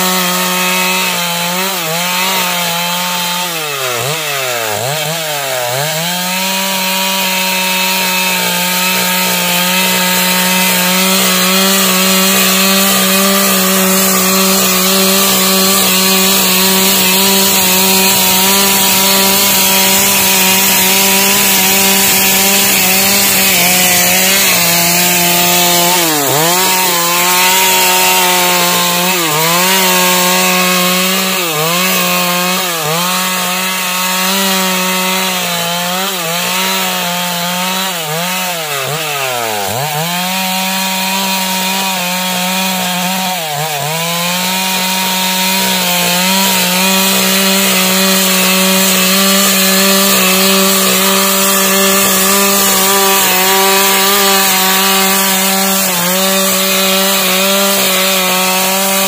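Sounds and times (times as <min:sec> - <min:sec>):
chainsaw cutting a log: 0:00.0 - 0:59.0.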